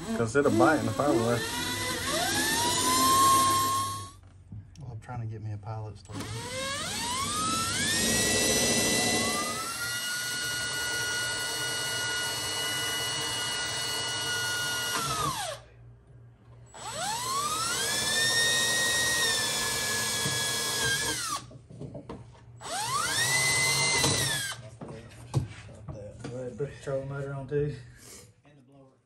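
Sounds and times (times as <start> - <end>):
cordless drill whining: 0.0 - 4.2, 6.1 - 15.6, 16.7 - 21.5, 22.6 - 24.6.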